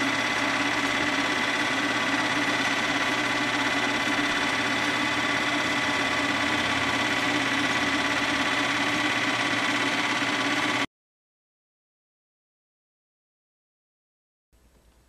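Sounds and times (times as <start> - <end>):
film projector running: 0.0 - 10.9.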